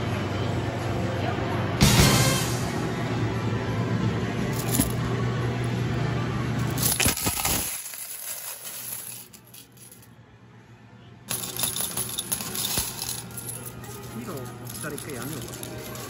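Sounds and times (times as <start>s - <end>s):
metal medals clinking and clattering: 4.5s - 5.0s, 6.7s - 10.1s, 11.3s - 16.0s.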